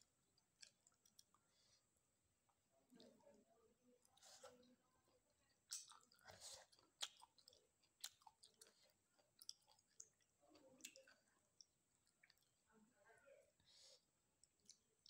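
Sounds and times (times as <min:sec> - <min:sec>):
chewing with mouth clicks: 0:00.4 - 0:01.4, 0:05.5 - 0:12.6, 0:14.4 - 0:15.0.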